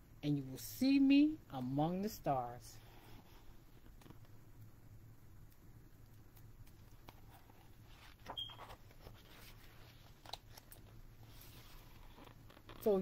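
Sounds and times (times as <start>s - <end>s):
faint low hum: 0.0s - 13.0s
paper page rustling: 6.9s - 13.0s.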